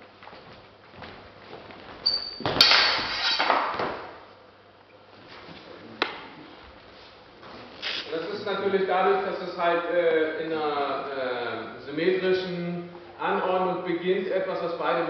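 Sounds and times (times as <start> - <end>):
swords and bucklers clashing: 2.4 - 3.8.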